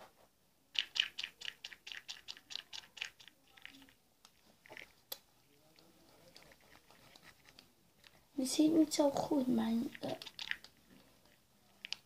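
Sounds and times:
powder brush scratchy strokes: 5.9 - 7.6.

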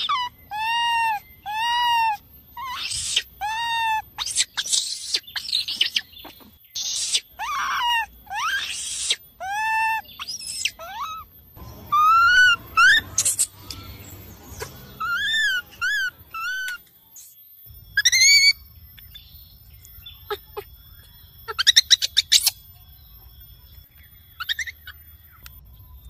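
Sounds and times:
monkey screeches: 0.0 - 11.3, 11.9 - 13.8, 14.6 - 16.8, 18.0 - 18.6, 21.5 - 22.6, 24.4 - 25.0
baby monkey cooing: 0.0 - 16.8, 18.0 - 19.2, 20.0 - 22.7, 24.4 - 25.3.

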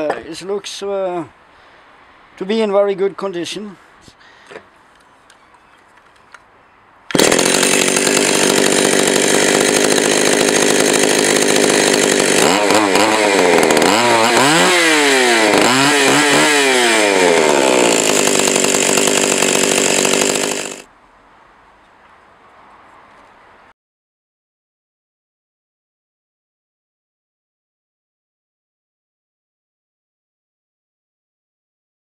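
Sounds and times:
chainsaw revving: 7.1 - 20.9.

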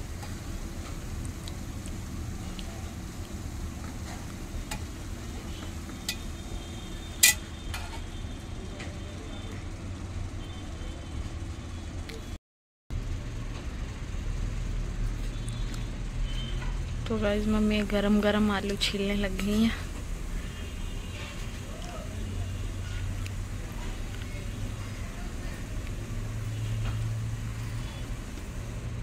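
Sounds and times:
metal tongs clinking on pot: 6.0 - 6.3, 7.2 - 8.0.

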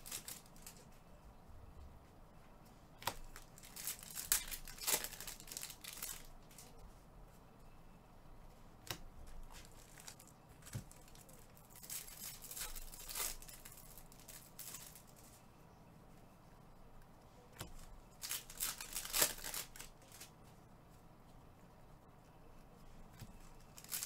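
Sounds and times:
card wrappers tearing and crinkling: 0.0 - 0.8, 3.0 - 6.7, 9.6 - 15.1, 18.1 - 20.3, 23.7 - 24.0.

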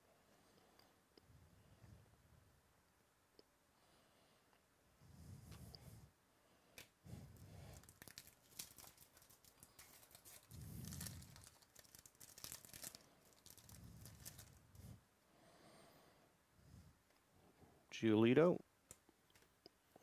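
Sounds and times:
foil wrapper tearing and crinkling: 7.6 - 14.6.

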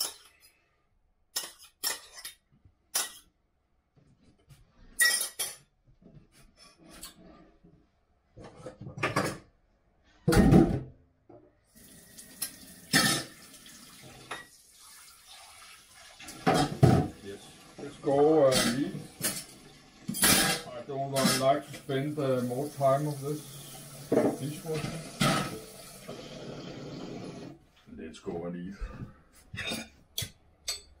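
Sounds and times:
pots and pans clattering: 8.5 - 9.5, 12.4 - 13.5, 16.2 - 17.3, 18.0 - 22.0, 23.5 - 27.5
tap water running: 11.7 - 27.6.

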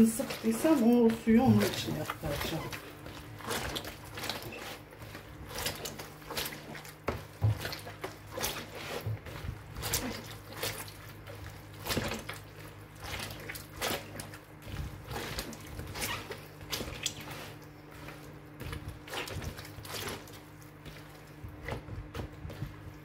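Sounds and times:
hand squishing tomatoes: 0.0 - 23.0
steady low hum: 0.0 - 23.0.

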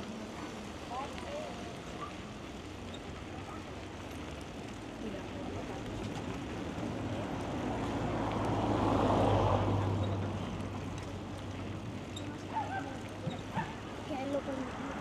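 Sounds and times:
vehicle passing by: 7.0 - 15.0.

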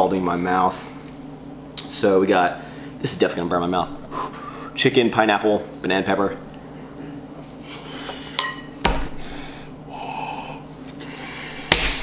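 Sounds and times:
person huffing air: 4.0 - 4.8
metal fork clinking glass bowl: 8.4 - 8.8.

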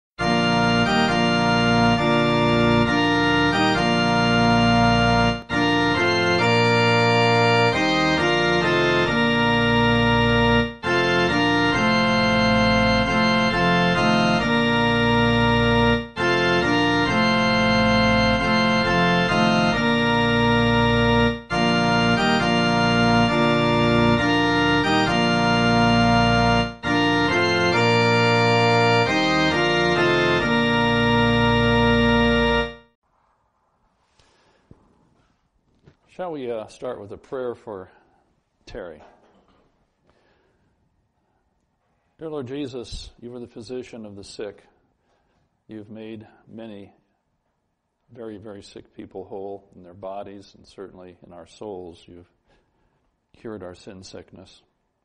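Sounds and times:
organ playing sustained chords: 0.2 - 33.0, 42.2 - 44.6, 48.1 - 52.6.

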